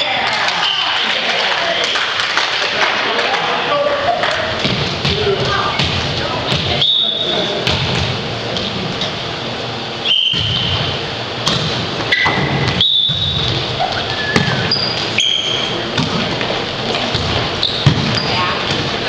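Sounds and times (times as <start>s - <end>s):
players' voices and movement: 0.0s - 19.0s
sneakers squeaking on wooden floor: 10.0s - 11.0s, 12.0s - 19.0s
volleyball being hit: 10.3s - 14.7s, 15.9s - 16.3s, 17.0s - 18.9s.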